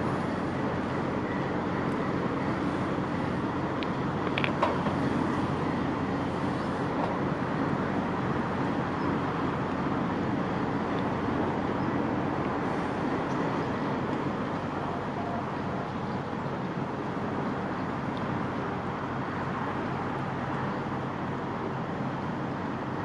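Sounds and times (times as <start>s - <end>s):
barge engine droning: 0.0s - 23.0s.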